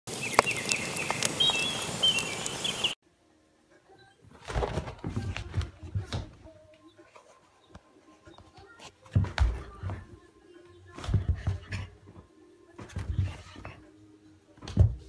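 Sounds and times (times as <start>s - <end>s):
steady hiss: 0.1s - 3.0s
dog scrambling with thumps: 11.0s - 12.0s, 12.8s - 13.8s.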